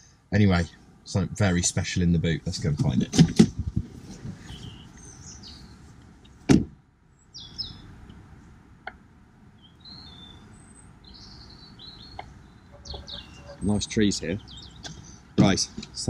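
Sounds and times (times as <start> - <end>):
birds chirping: 0.0 - 6.4, 7.0 - 16.0
faint outdoor background noise: 0.0 - 16.0
car door slamming: 6.5 - 6.8.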